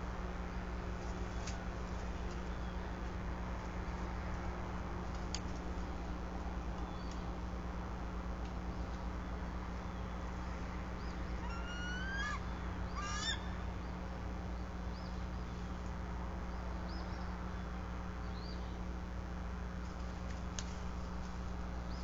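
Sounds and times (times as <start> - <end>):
steady low hum: 0.0 - 22.0
eagle calling: 11.0 - 13.6.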